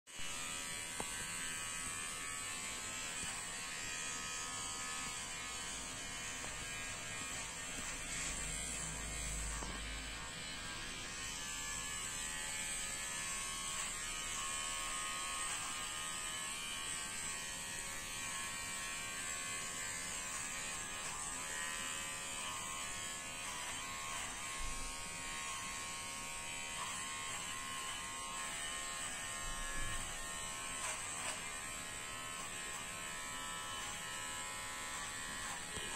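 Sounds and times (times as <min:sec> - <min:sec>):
electric clipper buzzing: 0:00.1 - 0:35.9.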